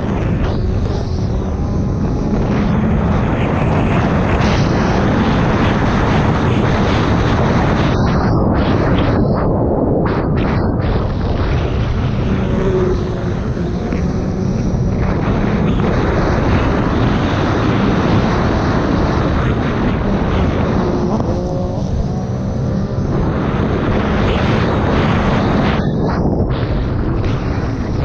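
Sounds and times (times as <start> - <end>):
watercraft engine running hard: 10.8 - 28.0.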